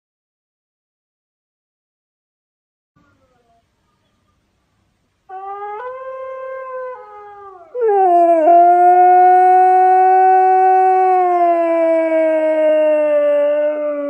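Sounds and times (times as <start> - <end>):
husky howling: 5.3 - 14.0.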